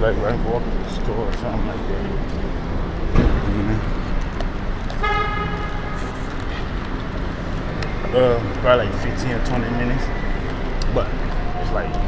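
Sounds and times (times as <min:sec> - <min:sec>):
low rumble of traffic: 0:00.0 - 0:12.0
car horn toot: 0:05.0 - 0:06.1.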